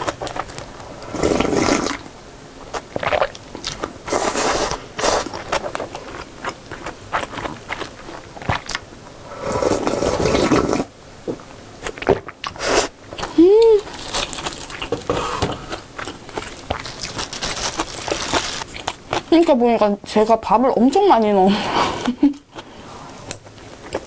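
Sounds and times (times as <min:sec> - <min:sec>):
slurping noodle soup: 0:00.9 - 0:02.0, 0:02.8 - 0:07.9, 0:08.5 - 0:10.9, 0:12.0 - 0:12.9
chewing and mouth clicks: 0:05.2 - 0:08.8.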